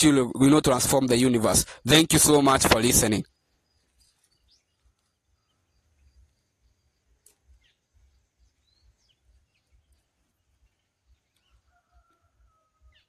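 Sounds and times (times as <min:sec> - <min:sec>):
faint bird chirps: 0:03.2 - 0:13.0.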